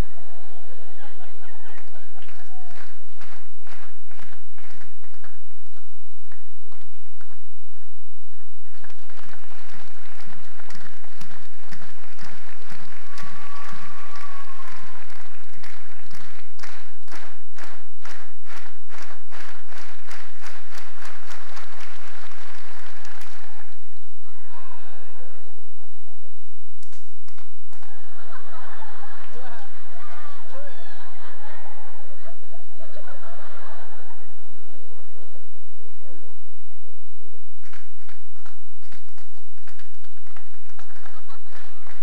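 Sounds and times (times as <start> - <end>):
crowd cheering: 0.0 - 5.0, 8.7 - 25.8, 27.4 - 35.6, 39.0 - 42.0
audience clapping in rhythm: 1.6 - 24.2, 26.8 - 30.6, 37.6 - 42.0.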